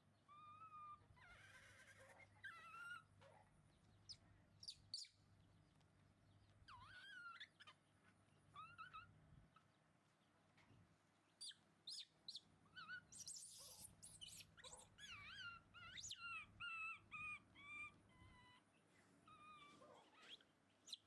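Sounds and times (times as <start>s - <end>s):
baby monkeys squealing: 0.3s - 3.1s, 6.6s - 7.8s, 8.6s - 9.1s, 11.4s - 18.6s, 19.3s - 21.0s.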